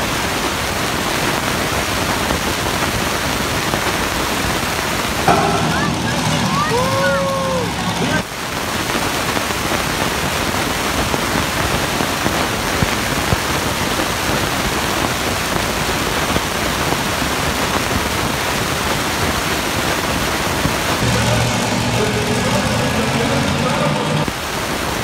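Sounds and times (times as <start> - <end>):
hiss-like arena noise: 0.0 - 25.0
heavy engine running: 5.3 - 8.4, 21.0 - 24.4.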